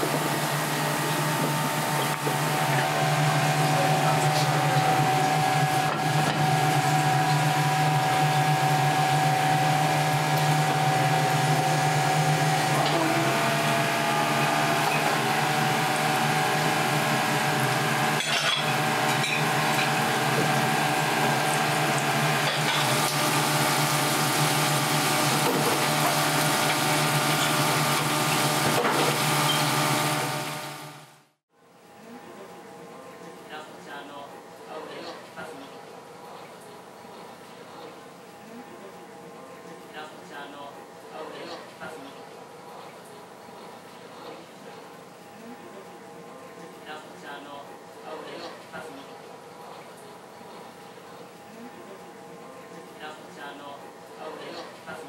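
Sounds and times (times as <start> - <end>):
gas burners and exhaust fan humming: 0.0 - 55.0
deep-frying oil sizzling: 0.1 - 31.0.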